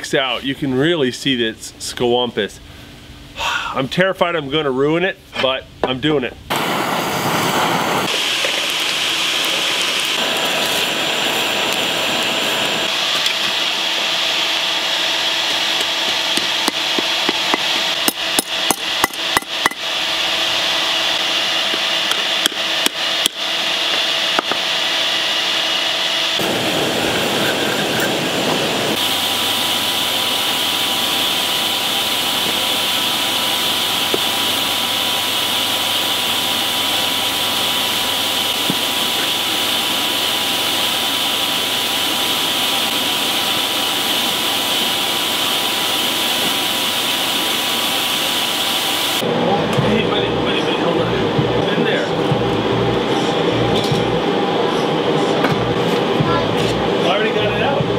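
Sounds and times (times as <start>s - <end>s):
forge air blower rushing: 6.5s - 57.9s
hammer striking metal on anvil: 16.4s - 19.8s.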